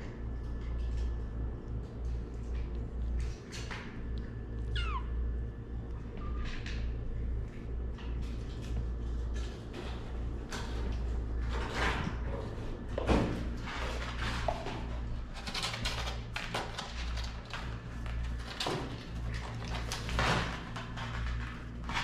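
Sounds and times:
steady low hum: 0.0s - 22.0s
kitten mewing: 4.6s - 5.2s.

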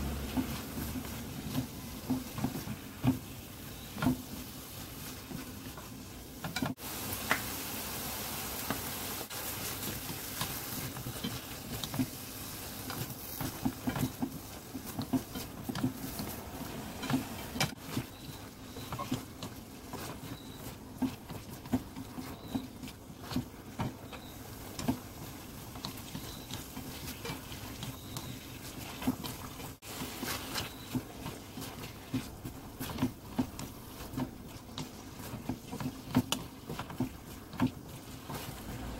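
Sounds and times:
vegetables sizzling in a pan: 0.0s - 21.0s, 24.0s - 35.8s
utensils clicking and scraping pan: 9.4s - 38.9s.

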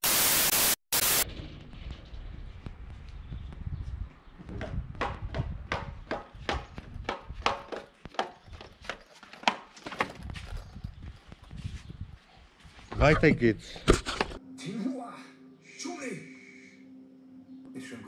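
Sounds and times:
footsteps on tiled stairs: 2.6s - 13.0s.

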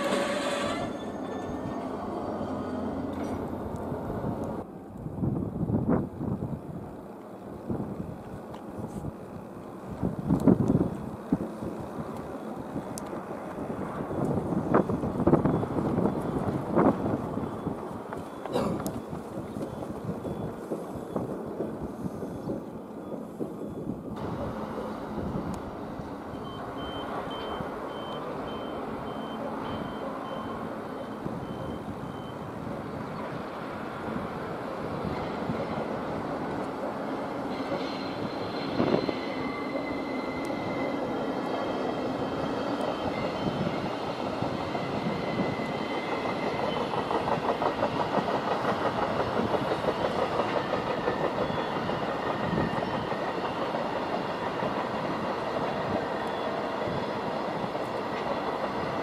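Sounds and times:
wheels clattering on rails: 0.0s - 4.6s, 33.2s - 59.0s.

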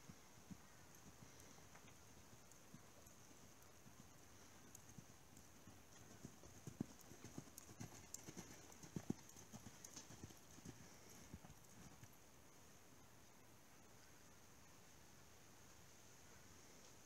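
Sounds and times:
horse hoofbeats on dirt: 0.0s - 12.1s.

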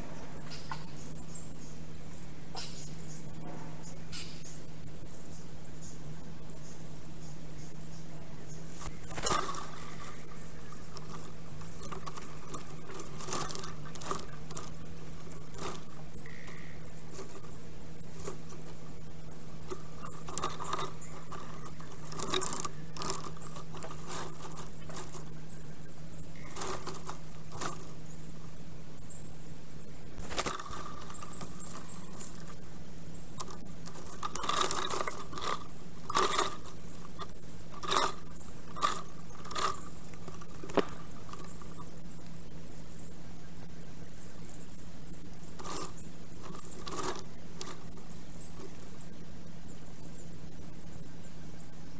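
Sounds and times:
steady low hum: 0.0s - 51.9s
twigs clicking and crackling: 8.8s - 28.1s, 30.2s - 42.4s, 45.4s - 48.8s.

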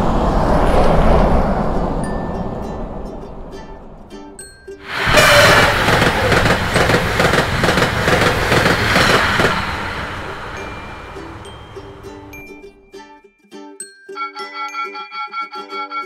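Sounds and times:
passenger train passing: 0.0s - 4.2s, 4.8s - 12.7s
wheels clattering on rails: 4.9s - 12.3s.

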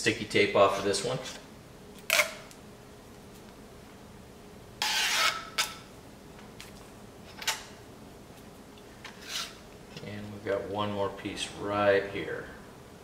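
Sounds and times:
tape liner ripping: 2.0s - 2.6s, 4.8s - 5.8s.

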